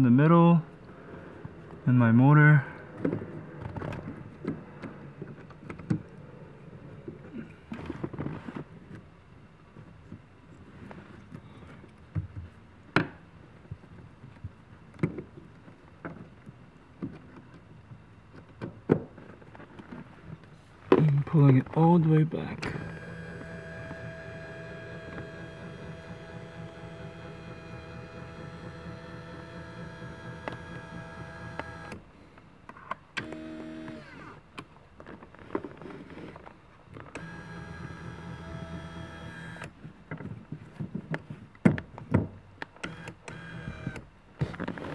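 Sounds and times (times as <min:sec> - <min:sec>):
electric seat motor running: 0:22.6 - 0:32.0, 0:33.2 - 0:34.4, 0:37.1 - 0:39.7, 0:42.8 - 0:44.0.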